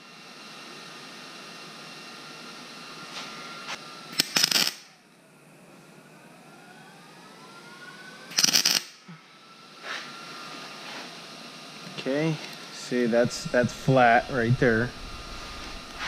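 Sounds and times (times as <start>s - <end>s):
welder arc bursts: 1.2s - 5.1s, 8.3s - 10.1s, 11.2s - 16.0s.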